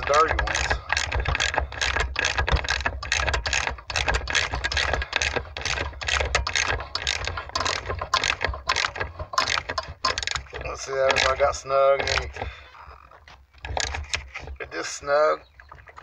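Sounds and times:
socket ratchet clicking: 0:00.0 - 0:12.5.

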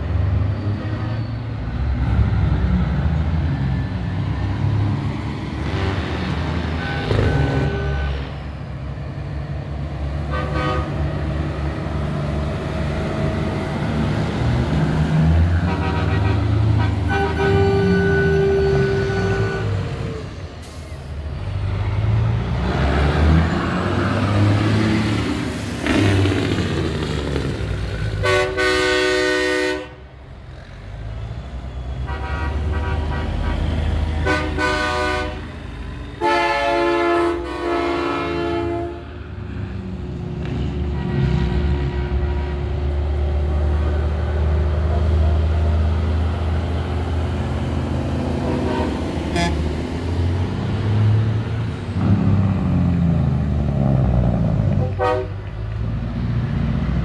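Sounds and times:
diesel truck engines rumbling: 0:00.0 - 0:57.0
truck air horn blasts: 0:05.6 - 0:08.4, 0:10.2 - 0:11.2, 0:15.6 - 0:19.9, 0:28.2 - 0:30.1, 0:32.0 - 0:35.6, 0:36.2 - 0:39.2, 0:40.9 - 0:43.0, 0:48.4 - 0:49.8, 0:54.8 - 0:55.4.

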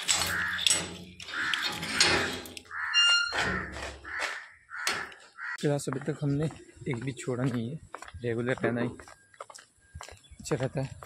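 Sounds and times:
gate bolt clanking and scraping: 0:00.0 - 0:05.2
gate creaking open: 0:00.0 - 0:05.2.

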